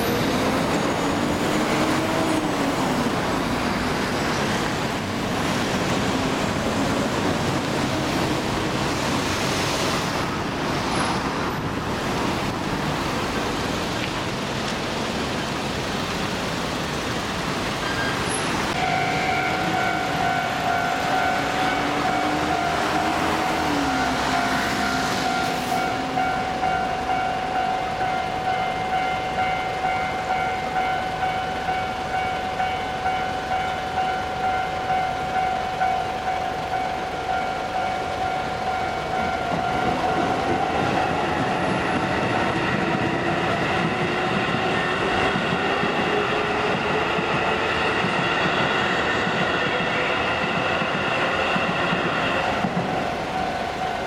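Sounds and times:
train wheel and rail noise: 0:00.0 - 0:54.0
level-crossing warning bell: 0:17.7 - 0:54.0.

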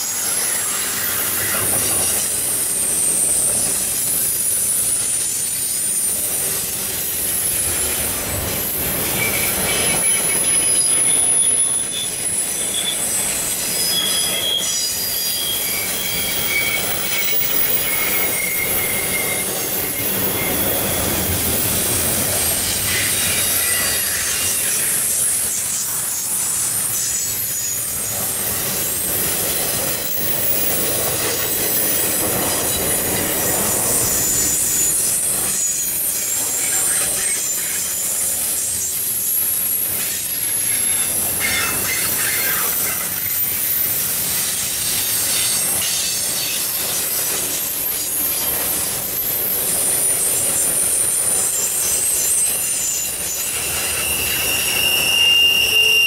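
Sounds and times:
high-pitched wheel squeal: 0:00.0 - 0:56.0
train wheels rumbling on rail: 0:00.0 - 0:56.0.

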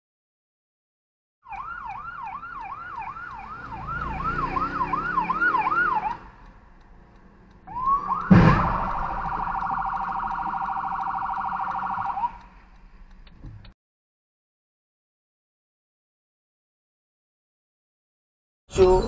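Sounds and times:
ambulance siren: 0:01.5 - 0:06.4, 0:07.6 - 0:12.5
loud vehicle crash: 0:07.7 - 0:11.0.

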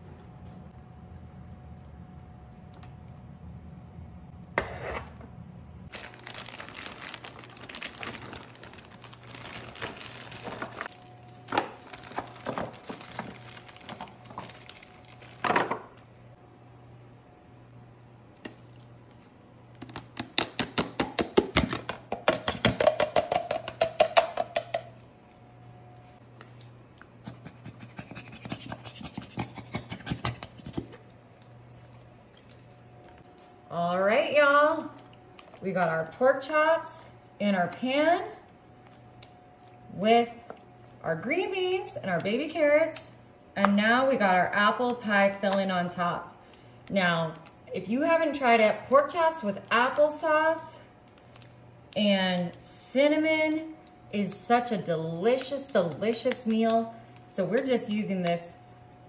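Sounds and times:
plastic packaging crinkling: 0:05.9 - 0:16.0.

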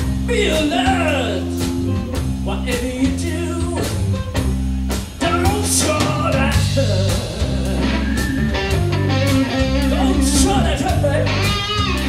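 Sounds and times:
blues-rock band playing: 0:00.0 - 0:12.0
man singing: 0:00.3 - 0:01.7, 0:02.4 - 0:04.2, 0:05.2 - 0:08.6, 0:09.7 - 0:11.5.

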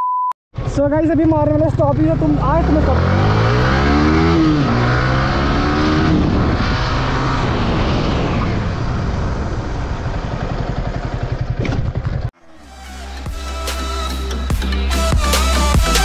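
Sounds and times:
motorcycle engine decelerating: 0:00.6 - 0:12.4.

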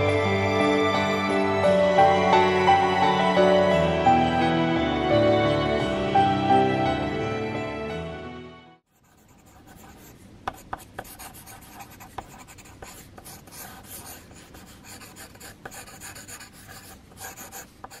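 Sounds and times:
pencil scratching on paper: 0:08.9 - 0:18.0.

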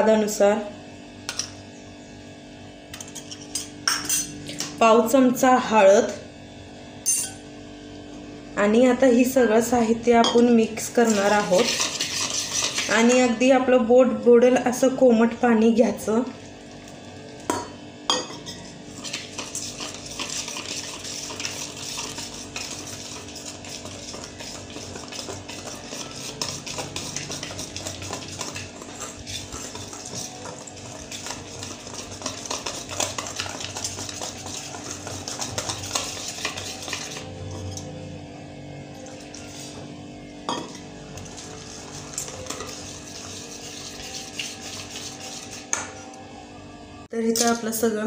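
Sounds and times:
whisk scraping steel bowl: 0:10.8 - 0:13.4, 0:18.6 - 0:37.8, 0:41.2 - 0:45.9.

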